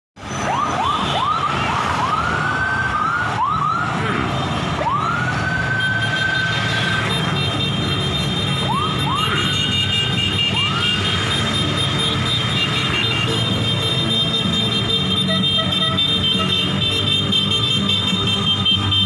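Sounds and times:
siren whooping and wailing: 0.2s - 7.4s, 8.2s - 13.8s
motorcycle and car engines rumbling: 0.2s - 19.0s.

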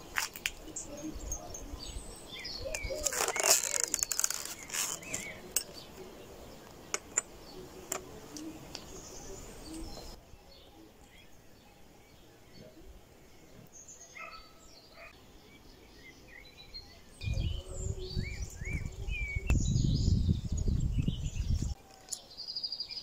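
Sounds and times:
birds chirping faintly: 0.0s - 23.0s
wicker basket creaking and rustling: 2.7s - 5.7s.

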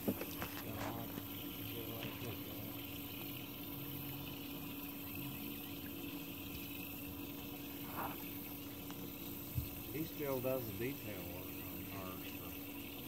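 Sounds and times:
boat motor humming: 0.0s - 13.0s
water moving alongside boat: 0.0s - 13.0s.

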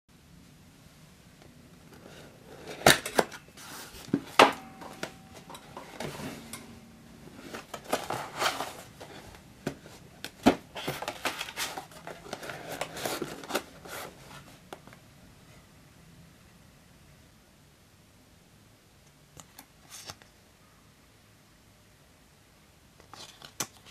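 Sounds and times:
cardboard rustling and scraping: 1.9s - 6.6s, 7.2s - 14.7s.

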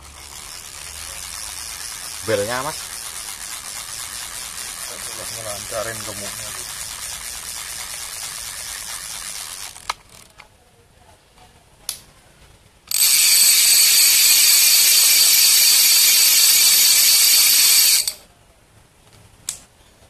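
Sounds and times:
fishing reel ratchet rattling: 0.0s - 10.3s, 12.9s - 18.2s
reel being cranked whirr: 0.0s - 10.3s, 12.9s - 18.2s.

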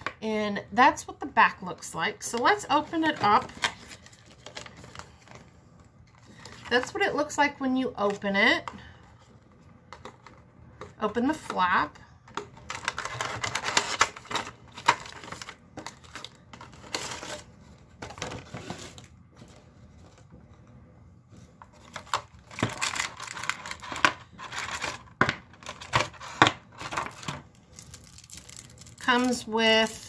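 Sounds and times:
packaging rustling: 3.0s - 6.8s, 12.3s - 20.3s, 21.6s - 30.0s.

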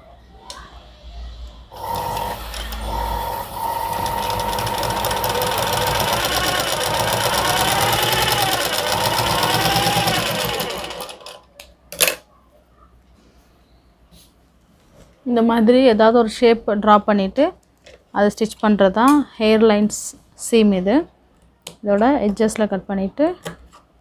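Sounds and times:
sewing machine stitching: 1.7s - 11.4s.

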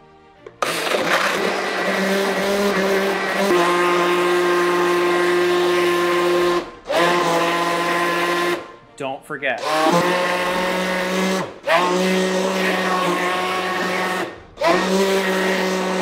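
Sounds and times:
blender motor whine: 0.6s - 8.7s, 9.6s - 16.0s.

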